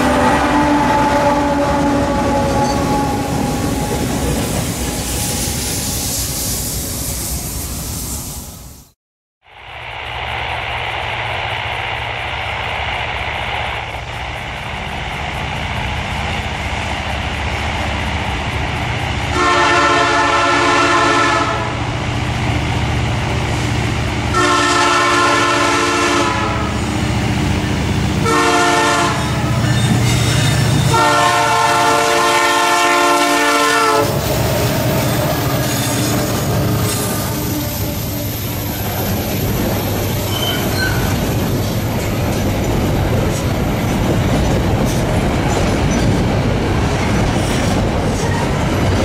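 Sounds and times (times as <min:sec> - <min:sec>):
train horn: 0:00.0 - 0:05.6, 0:19.3 - 0:21.9, 0:24.3 - 0:26.8, 0:28.2 - 0:38.8
locomotive engine running: 0:09.5 - 0:49.0.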